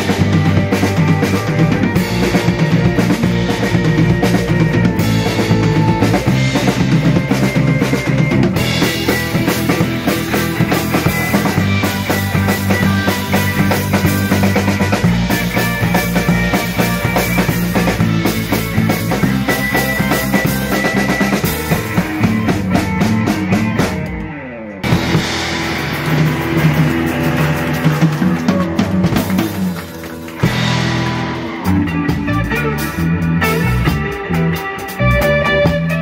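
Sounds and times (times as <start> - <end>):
rock band playing: 0.0 - 36.0.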